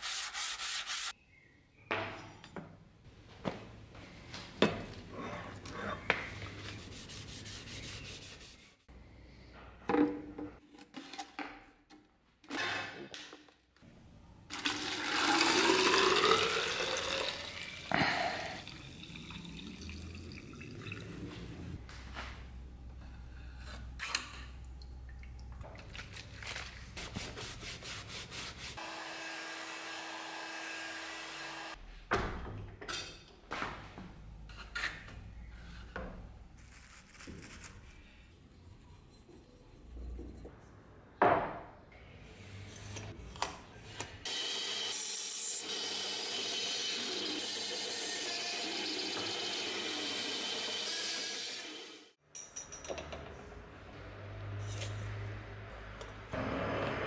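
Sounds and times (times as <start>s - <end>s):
band saw cutting wood: 28.8s - 31.8s, 44.2s - 52.1s.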